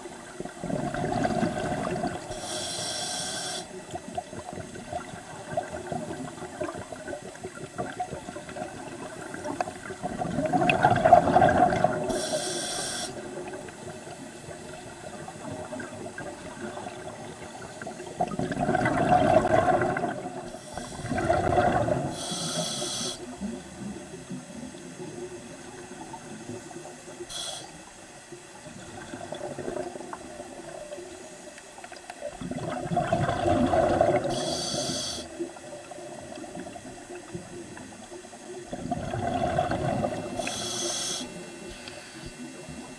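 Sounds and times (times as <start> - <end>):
exhaled bubbles gushing: 0.0 - 2.3, 4.0 - 12.2, 13.2 - 22.2, 28.7 - 30.9, 32.2 - 34.4, 38.6 - 40.5
high hiss of inhaled air: 2.3 - 3.8, 12.1 - 13.2, 22.1 - 23.3, 27.2 - 27.8, 34.3 - 35.4, 40.4 - 42.4.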